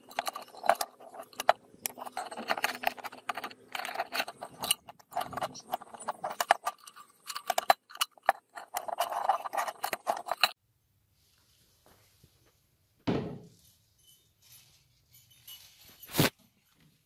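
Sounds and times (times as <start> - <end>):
metal lantern parts rattling and clinking: 0.0 - 10.6, 13.9 - 16.3.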